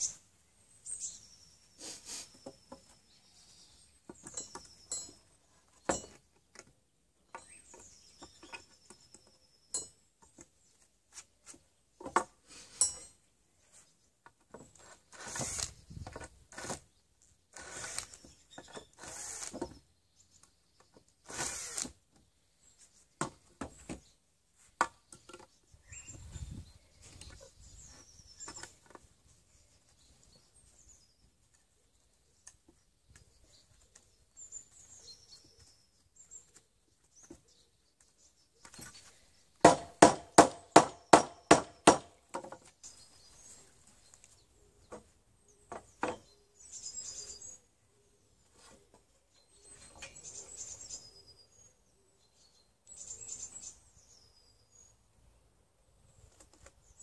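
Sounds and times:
cordless drill bursts: 17.6 - 18.1, 19.0 - 19.5, 21.2 - 21.9.

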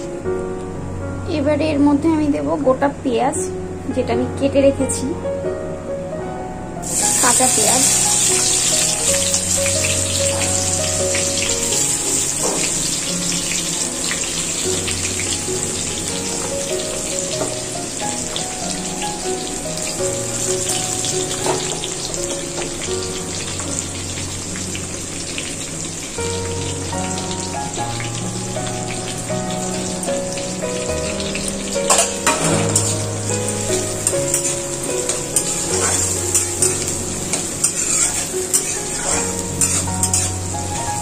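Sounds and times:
background music: 0.0 - 41.0
onions sizzling in oil: 6.8 - 41.0.

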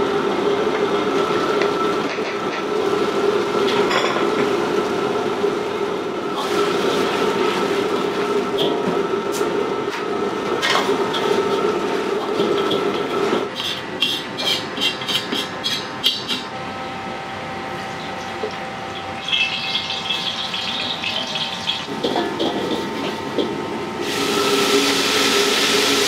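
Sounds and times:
wok burner roaring: 0.0 - 26.0
hissing sizzle: 24.0 - 26.0.

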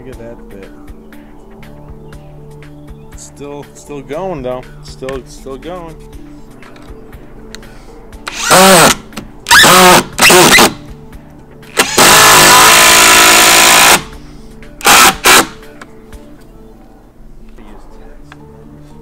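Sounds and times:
impact driver hammering screw: 8.3 - 10.8, 11.8 - 14.1, 14.8 - 15.6.

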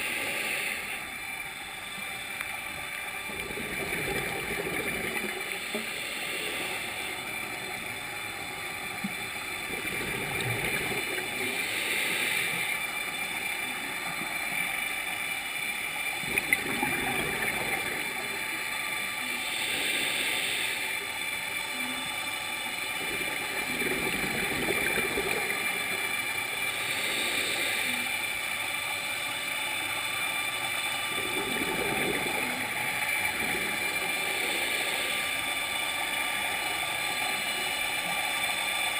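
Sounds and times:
scuba regulator inhale hiss: 0.0 - 1.4, 3.3 - 15.6, 16.3 - 21.6, 22.3 - 38.9
faint steady hum: 0.0 - 38.9
bubbling exhale: 3.2 - 7.9, 9.5 - 12.8, 16.2 - 21.4, 23.0 - 28.3, 30.9 - 36.0.

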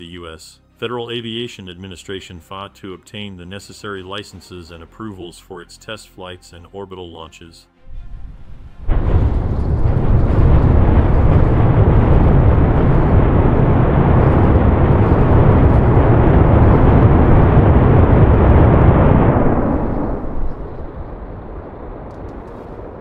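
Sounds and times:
rocket engines roaring: 7.9 - 23.0.

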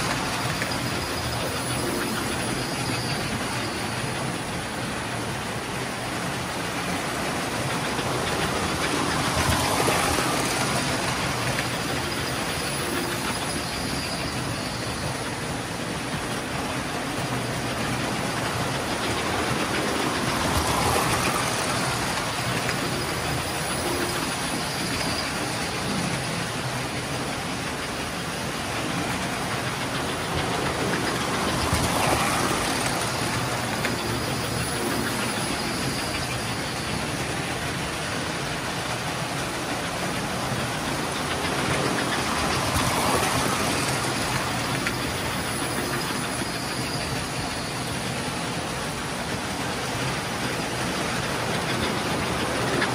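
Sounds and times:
toy train motors whirring: 0.0 - 52.9
wheels rattling on rails: 0.0 - 52.9.

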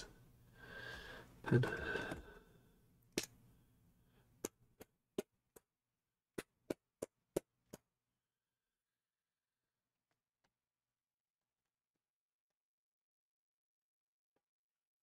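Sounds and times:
pen tapping on paper: 6.4 - 7.9.

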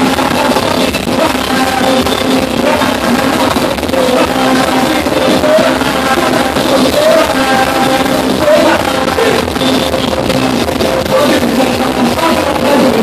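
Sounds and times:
drums: 0.0 - 13.0
keyboard: 0.0 - 13.0
man singing: 0.0 - 13.0.

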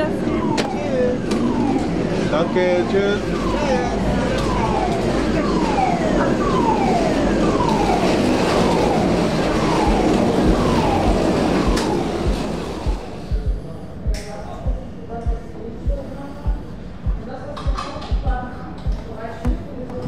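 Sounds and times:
alarm falling tone: 0.0 - 13.6.

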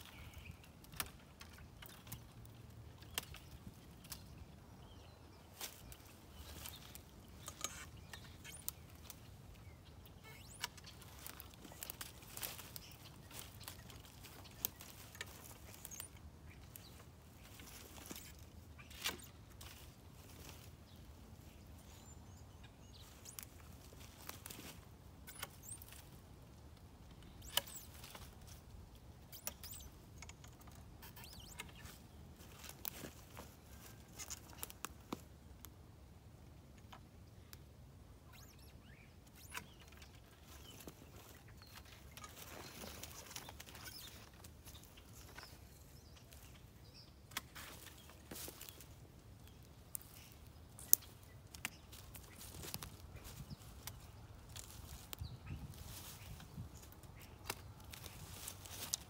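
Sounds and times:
rustling branches and dry leaves: 0.0 - 59.0
loppers snipping twigs: 0.1 - 4.4, 5.6 - 9.4, 10.0 - 20.7, 27.0 - 35.8, 47.2 - 59.0.

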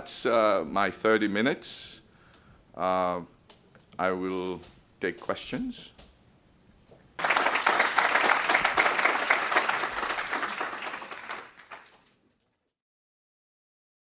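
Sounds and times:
audience applauding: 7.2 - 12.2.

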